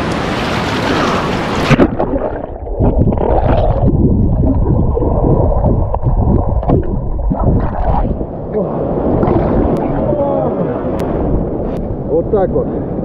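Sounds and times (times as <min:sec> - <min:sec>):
underwater sloshing and gurgling: 0:00.0 - 0:12.1
sea surf splashing: 0:00.0 - 0:13.0.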